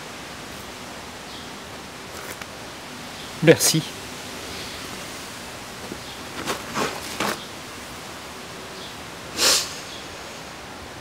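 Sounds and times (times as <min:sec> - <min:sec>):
steady background hiss: 0:00.0 - 0:11.0
soft rustles: 0:05.8 - 0:07.5
person sniffing: 0:09.4 - 0:10.4.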